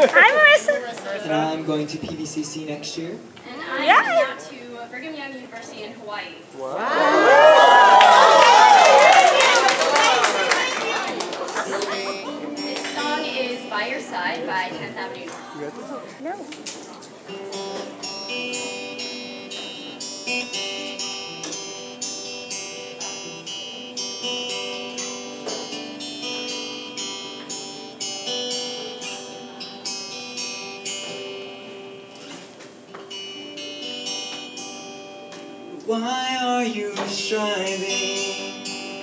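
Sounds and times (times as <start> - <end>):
acoustic guitar strumming chords: 8.8 - 16.2, 17.2 - 39.0.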